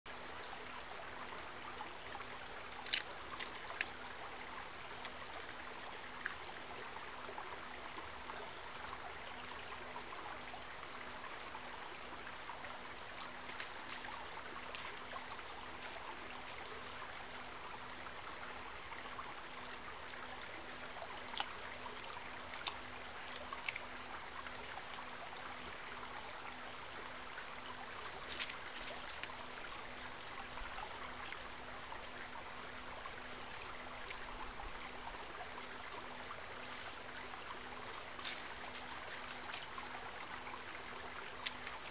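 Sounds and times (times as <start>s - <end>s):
faint low hum: 0.1s - 41.9s
small stream running: 0.1s - 41.9s.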